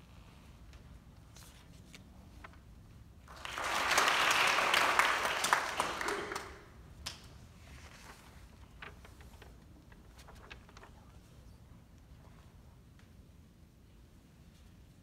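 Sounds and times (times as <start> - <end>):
audience applauding: 3.3 - 6.7.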